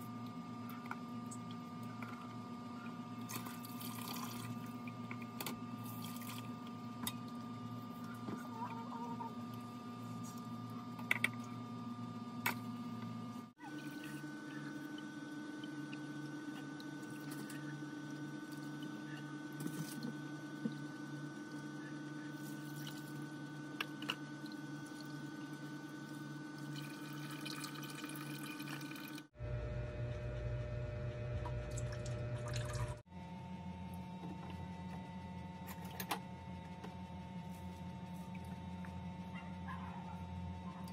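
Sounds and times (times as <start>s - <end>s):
steady background hum: 0.0s - 40.9s
liquid dripping and pouring: 3.3s - 5.3s, 26.6s - 29.3s, 31.7s - 33.0s.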